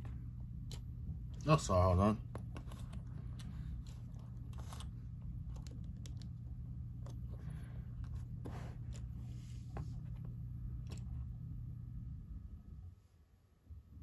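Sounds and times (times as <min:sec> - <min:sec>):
steady low hum: 0:00.0 - 0:14.0
soft rustles: 0:07.0 - 0:11.3.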